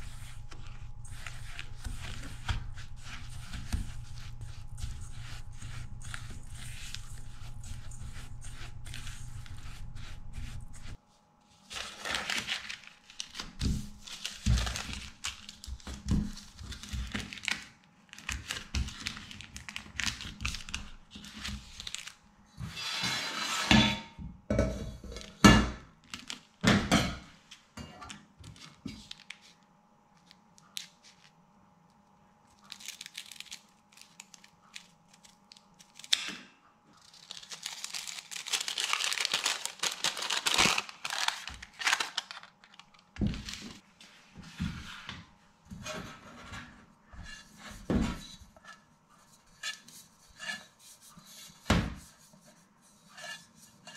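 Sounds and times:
spatula scraping metal bowl: 0.0 - 11.0, 22.7 - 24.0, 49.4 - 51.4, 53.0 - 53.9
baking paper crinkling: 0.0 - 22.3, 26.0 - 26.6, 28.4 - 36.3, 36.9 - 45.1.

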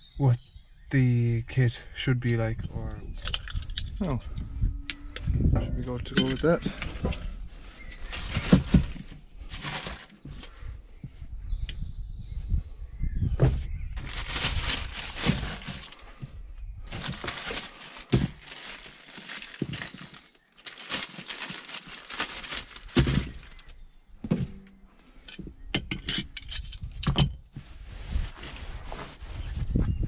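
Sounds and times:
plastic bag rustling: 7.6 - 10.5, 14.0 - 23.8.

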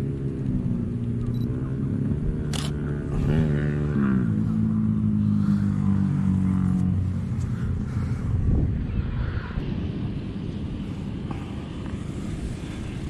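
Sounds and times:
vehicle engine running: 0.0 - 8.4
camera shutter click: 2.5 - 2.8.

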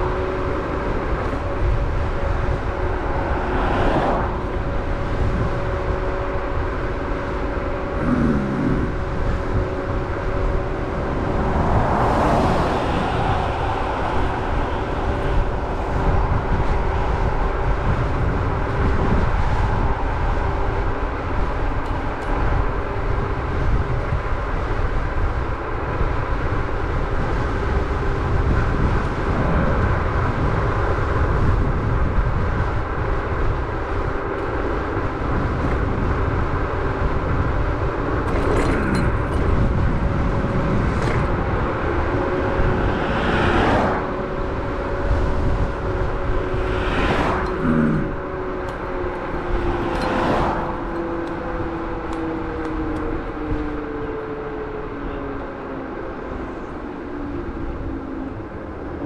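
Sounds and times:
electric motor whine: 0.0 - 19.2
wind rushing over microphone: 0.0 - 59.0.

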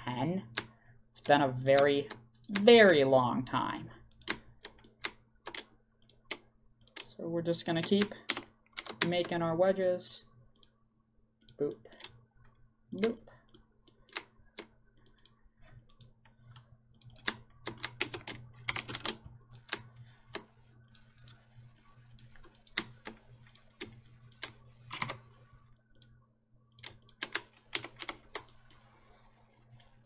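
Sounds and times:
faint low hum: 0.0 - 30.0
keyboard typing: 4.1 - 7.1, 7.7 - 9.4, 11.4 - 29.1
mouse clicking: 13.0 - 18.0.

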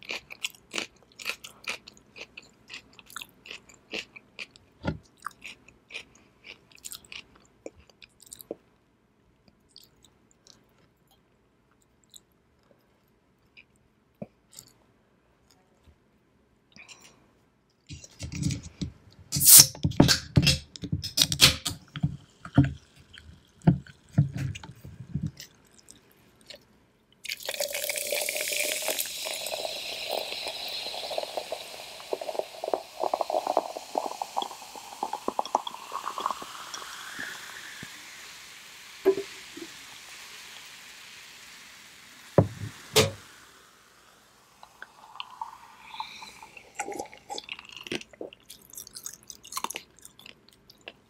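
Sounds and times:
fizzy drink pouring into glass: 27.3 - 49.0
thump: 42.4 - 43.2.

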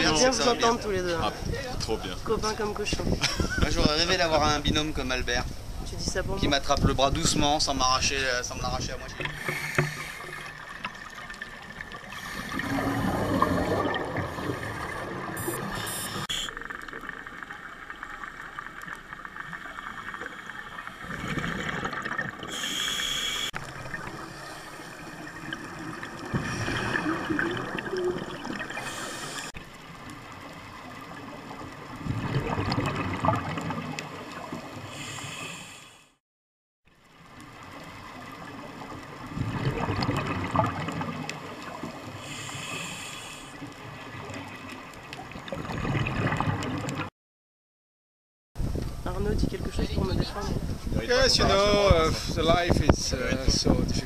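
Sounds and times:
exhaled bubbles underwater: 8.6 - 29.6, 30.4 - 35.3, 37.8 - 42.8, 43.6 - 47.1
regulator hiss: 14.4 - 16.6, 22.5 - 23.6, 42.2 - 43.6.

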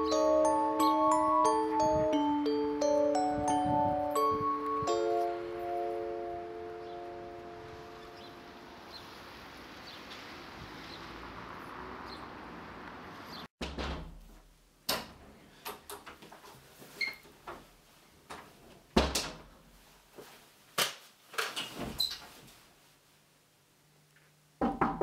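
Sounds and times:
outdoor background hiss: 0.0 - 13.4, 14.0 - 25.0
door opening and shutting: 13.6 - 14.3.

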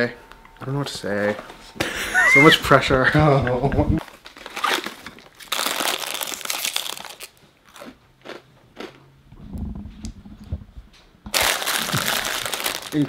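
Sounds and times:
foil bag crinkling: 4.0 - 7.4, 11.3 - 13.0
crackers crunching: 4.0 - 9.0, 11.3 - 13.0.

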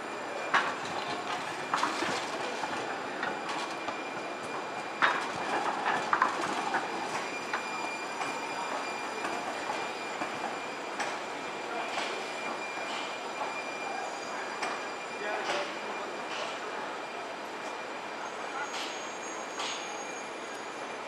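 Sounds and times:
tram rolling noise: 0.0 - 21.0
tram wheels clacking over rail joints: 0.4 - 8.4.

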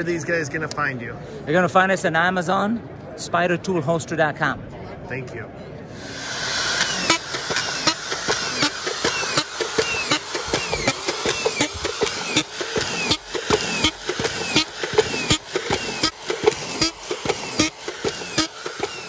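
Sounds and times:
screwdriver motor whine: 6.0 - 19.0
screwdriver clack: 6.8 - 19.0.

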